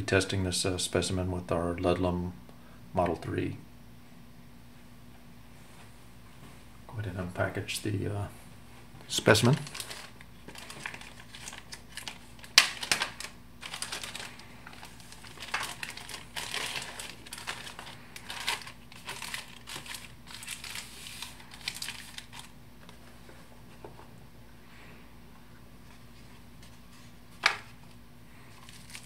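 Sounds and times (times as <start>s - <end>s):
plastic bag crinkling: 9.1s - 22.6s, 28.4s - 29.0s.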